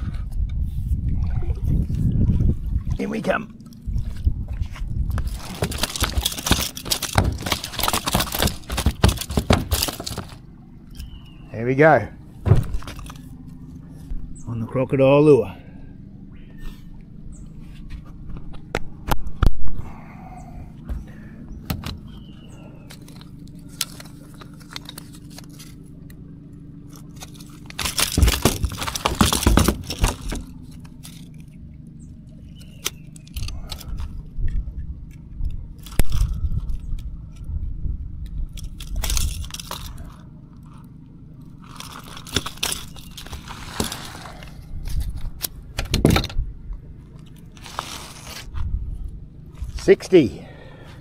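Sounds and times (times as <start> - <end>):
steady low hum: 0.0 - 51.0
fish rattling and splashing: 5.2 - 10.4, 26.8 - 34.2, 38.6 - 45.2.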